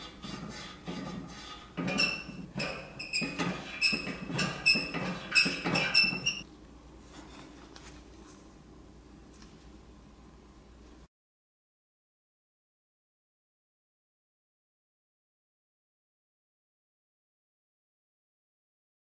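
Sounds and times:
swab squeaking on metal: 0.0s - 6.4s.

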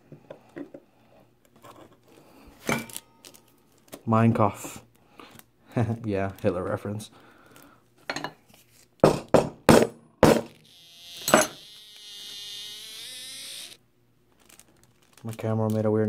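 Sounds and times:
knocks on metal workbench: 9.0s - 10.5s
camera buzzing whine: 10.6s - 13.8s.

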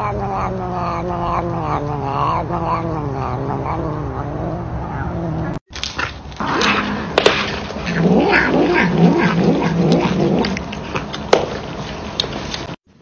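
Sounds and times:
cat growling yowls: 0.0s - 5.6s, 7.9s - 11.0s.

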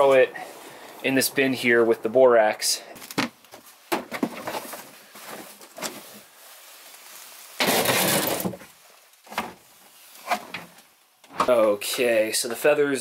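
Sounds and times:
plastic bin scraping clatter: 4.0s - 6.2s, 7.6s - 8.7s.

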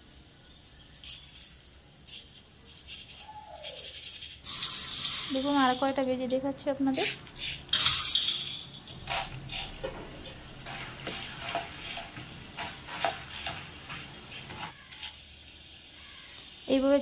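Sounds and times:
chickpeas sizzling in hot oil: 3.0s - 6.2s, 6.9s - 17.0s
metal spoon scraping pan: 6.9s - 15.2s.

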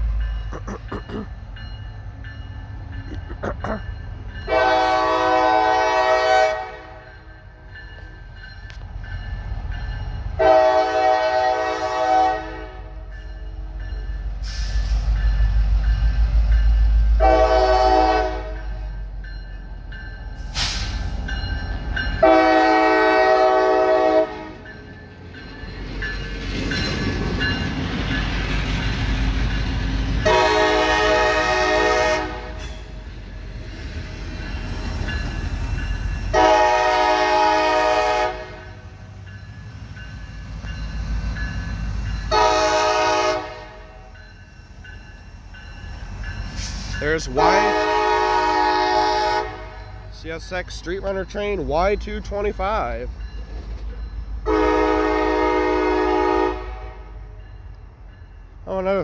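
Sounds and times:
train rumbling past: 0.0s - 59.0s
locomotive air horn blasts: 4.5s - 7.1s, 10.4s - 13.1s, 17.2s - 18.6s, 22.2s - 24.6s, 30.2s - 32.7s, 36.3s - 38.8s, 42.3s - 44.1s, 47.4s - 49.8s, 54.4s - 57.2s.

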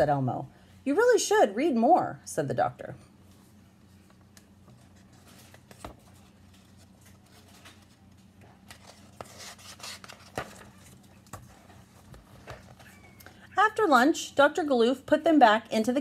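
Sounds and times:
faint low hum: 0.0s - 16.0s
paper rustling: 3.4s - 13.2s
book page turning: 4.0s - 13.2s.

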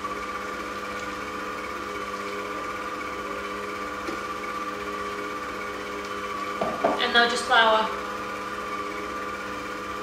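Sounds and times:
stand mixer motor hum: 0.0s - 10.0s.

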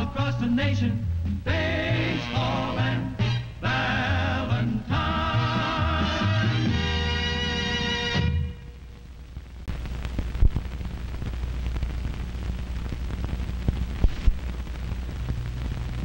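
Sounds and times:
steady film hiss: 0.0s - 16.0s
film crackles and pops: 8.8s - 16.0s.

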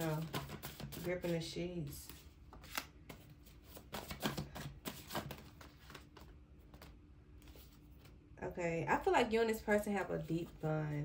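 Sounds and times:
paper cards shuffled: 0.0s - 8.2s.

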